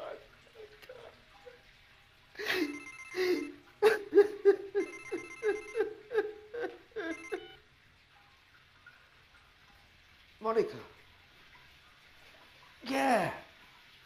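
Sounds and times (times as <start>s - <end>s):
phone ringtone: 2.5s - 3.6s, 4.8s - 6.0s, 7.0s - 7.6s.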